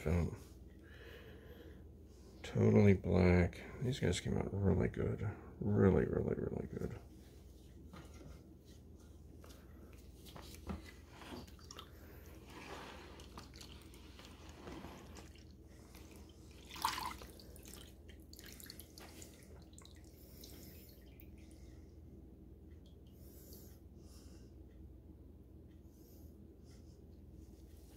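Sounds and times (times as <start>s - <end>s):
liquid sloshing and dripping: 9.9s - 21.8s.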